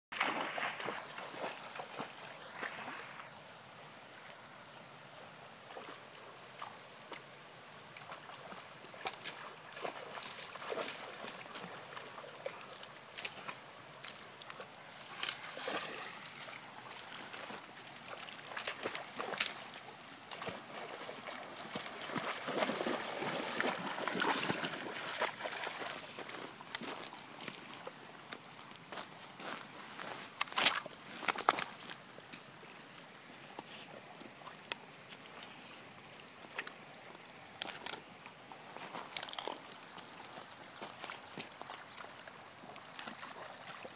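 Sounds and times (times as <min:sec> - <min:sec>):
dog splashing through water: 0:00.2 - 0:02.8, 0:20.3 - 0:26.4.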